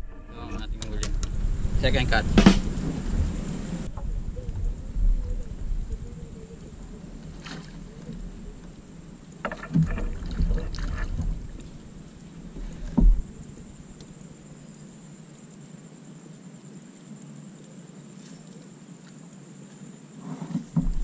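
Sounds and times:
low rumble: 0:00.0 - 0:07.3
sharp thump: 0:02.3 - 0:02.9.

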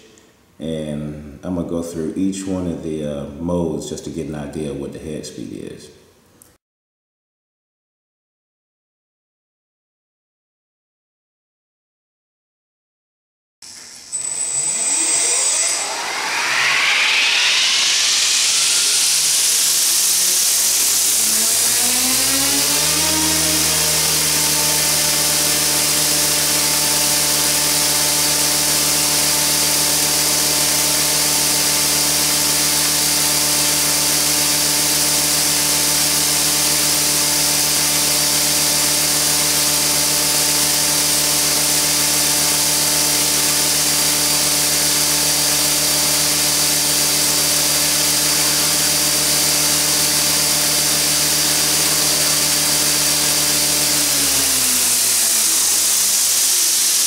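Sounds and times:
electric motor hum: 0:13.7 - 0:57.0
helicopter rotor blade whir: 0:13.7 - 0:57.0
hiss of rotor wash: 0:16.0 - 0:21.6, 0:55.0 - 0:57.0.

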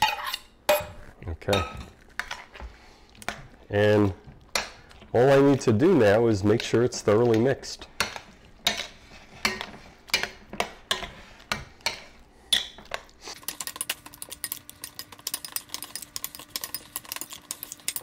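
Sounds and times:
spoon stirring in glass bowl: 0:13.3 - 0:18.0.

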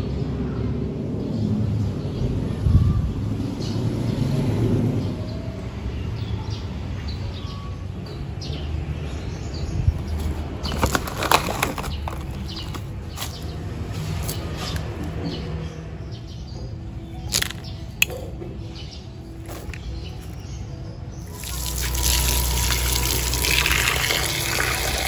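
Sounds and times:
wind rumble on microphone: 0:00.8 - 0:05.1
plastic bag crinkling: 0:10.5 - 0:13.4.

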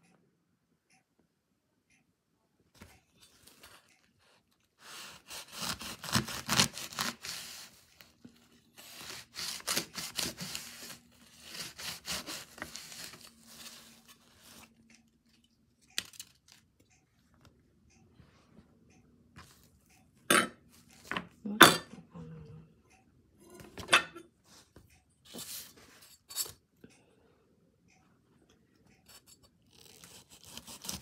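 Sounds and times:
knife crunching through corn husk: 0:04.9 - 0:07.8, 0:29.8 - 0:31.0.

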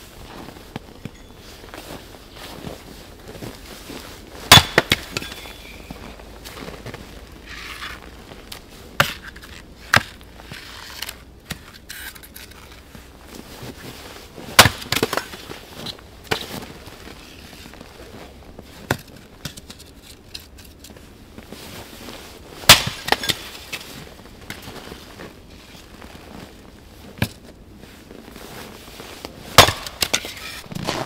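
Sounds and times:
axe splitting firewood: 0:04.4 - 0:05.6, 0:09.0 - 0:12.6, 0:14.5 - 0:15.4, 0:22.6 - 0:23.8, 0:29.5 - 0:31.0.

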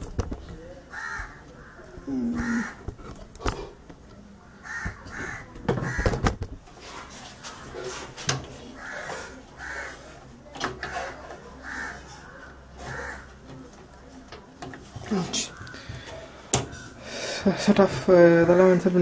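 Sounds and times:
crows cawing: 0:00.9 - 0:03.0, 0:04.5 - 0:06.4, 0:08.7 - 0:10.2, 0:10.8 - 0:13.6, 0:15.1 - 0:17.4
cables and plugs knocking in metal case: 0:05.6 - 0:06.6.

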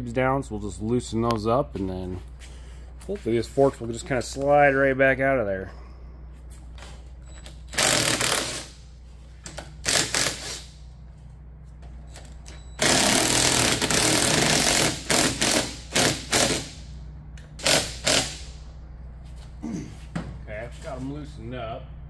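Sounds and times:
impact wrench hammering: 0:07.7 - 0:08.8, 0:09.6 - 0:10.8, 0:12.5 - 0:17.0, 0:17.6 - 0:18.6.

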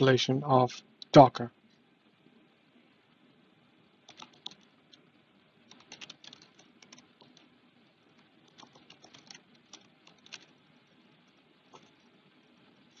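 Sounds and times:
low room noise: 0:00.0 - 0:13.0
faint keyboard typing: 0:04.0 - 0:12.3.

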